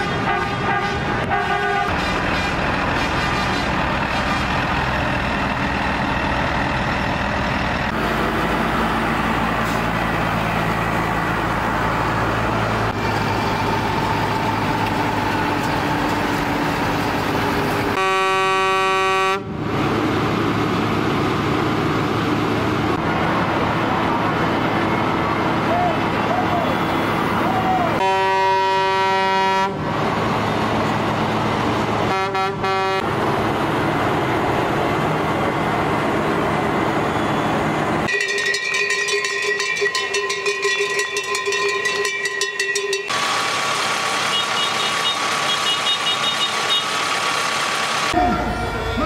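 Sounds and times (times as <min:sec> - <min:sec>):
horns honking: 0:00.0 - 0:04.6, 0:17.9 - 0:19.6, 0:25.7 - 0:29.8, 0:32.0 - 0:33.1, 0:44.2 - 0:47.1
tractor engines running: 0:00.0 - 0:49.0.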